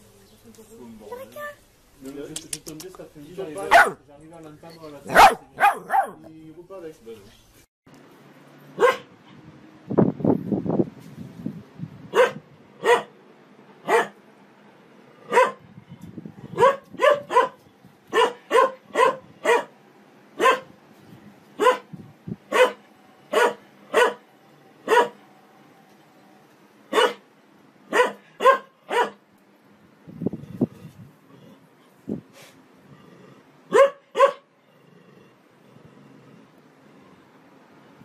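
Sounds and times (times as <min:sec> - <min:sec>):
dog barking: 0:03.6 - 0:04.0, 0:05.1 - 0:06.2, 0:08.8 - 0:09.1, 0:12.1 - 0:13.2, 0:13.8 - 0:14.2, 0:15.3 - 0:15.6, 0:16.6 - 0:19.7, 0:20.4 - 0:20.7, 0:21.6 - 0:21.9, 0:22.5 - 0:24.2, 0:24.8 - 0:25.2, 0:26.9 - 0:27.2, 0:27.9 - 0:29.2, 0:33.7 - 0:34.5.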